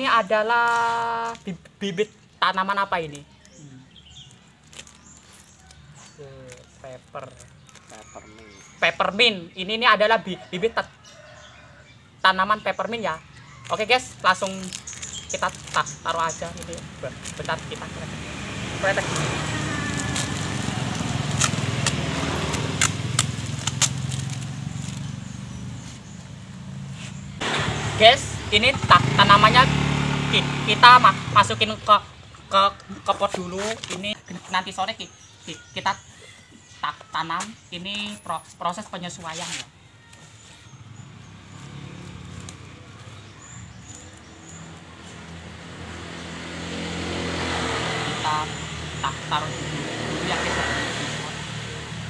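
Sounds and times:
plastic bag crinkling and tearing: 0:04.3 - 0:05.6, 0:06.5 - 0:08.2, 0:13.6 - 0:17.8, 0:19.1 - 0:25.2
low engine hum: 0:14.8 - 0:34.1.

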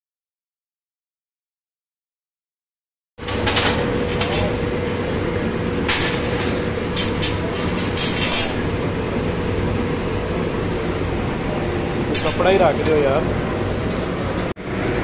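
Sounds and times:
workshop machinery hum: 0:03.2 - 0:15.0.

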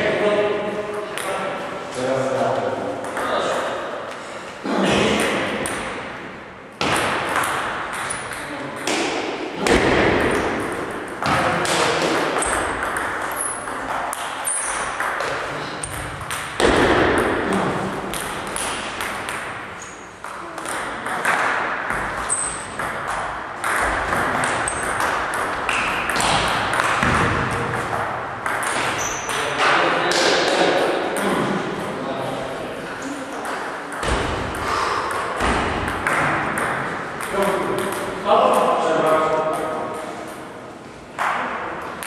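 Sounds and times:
ball bouncing on table: 0:06.8 - 0:19.6, 0:20.2 - 0:30.6, 0:33.4 - 0:38.2.

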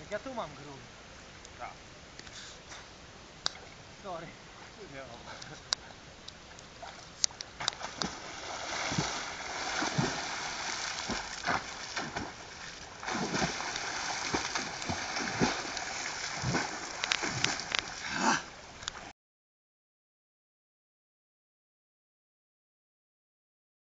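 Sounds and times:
swimmers splashing: 0:07.7 - 0:18.6.

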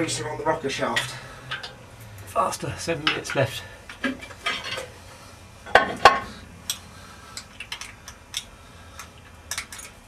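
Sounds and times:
metal clinks and taps on engine: 0:01.0 - 0:01.8.

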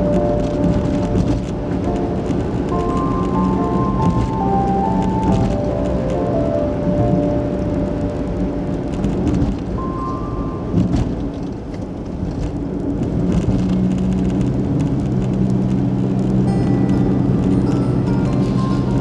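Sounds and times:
car driving on road: 0:00.0 - 0:19.0
faint music: 0:16.4 - 0:19.0.

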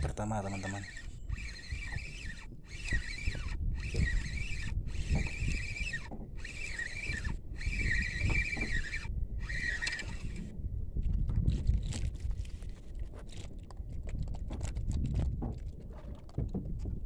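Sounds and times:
wavering high squeak: 0:00.0 - 0:10.5.

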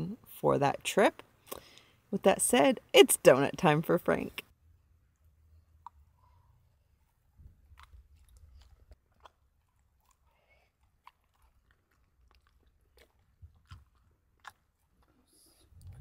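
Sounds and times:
dog crunching a treat: 0:07.6 - 0:16.0.

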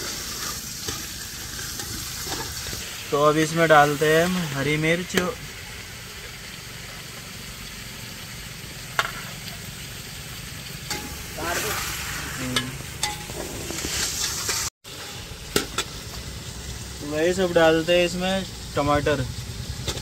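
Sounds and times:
food sizzling in oil: 0:00.0 - 0:20.0
metal spoon clanking on pot: 0:10.9 - 0:11.2
low rumble: 0:18.4 - 0:20.0.

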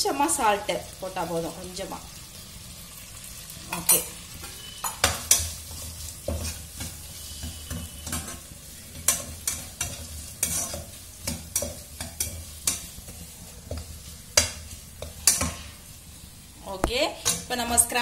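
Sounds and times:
vegetables sizzling in oil: 0:00.0 - 0:18.0
metal spatula clacking on pot: 0:04.8 - 0:05.6, 0:09.0 - 0:13.0, 0:13.7 - 0:15.6.

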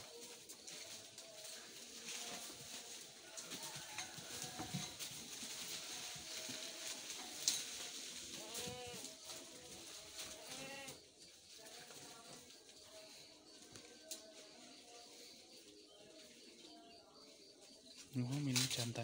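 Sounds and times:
leafy branches rustling: 0:00.0 - 0:13.3, 0:18.0 - 0:19.0
goats bleating: 0:01.6 - 0:12.5.

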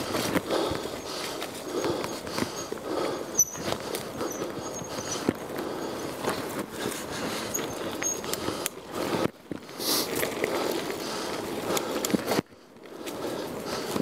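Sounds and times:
bicycle clicks and rattles: 0:00.0 - 0:14.0
bicycle tyres on gravel: 0:00.0 - 0:14.0.

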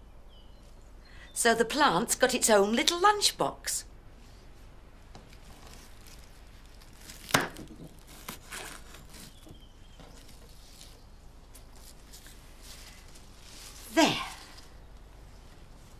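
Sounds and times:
leaves rustling: 0:04.1 - 0:15.9.

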